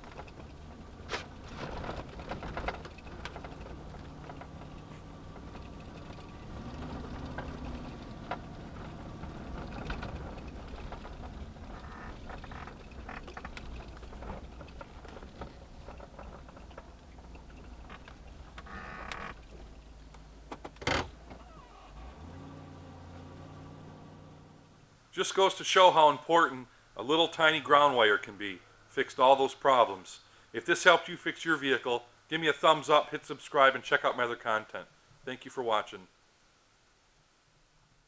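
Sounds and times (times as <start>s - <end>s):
knocks and rattles from bumps: 0.0s - 21.5s
pickup truck engine and road drone: 0.0s - 25.0s.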